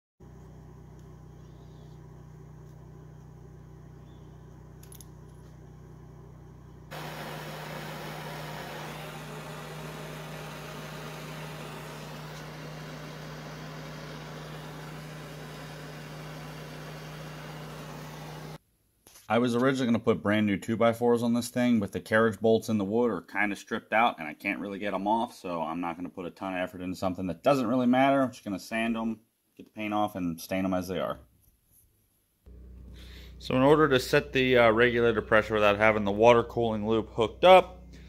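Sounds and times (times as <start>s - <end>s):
air compressor running: 0.2s - 18.6s, 32.5s - 36.1s, 37.7s - 38.0s.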